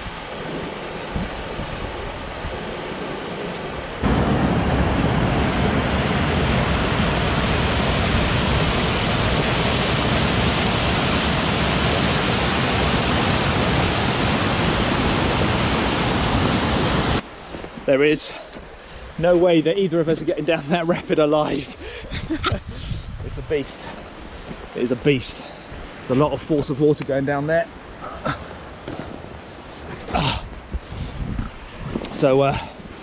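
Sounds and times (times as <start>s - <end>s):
wind noise: 0.0s - 17.2s, 21.8s - 24.8s, 28.3s - 33.0s
river rapids rushing: 4.0s - 17.2s.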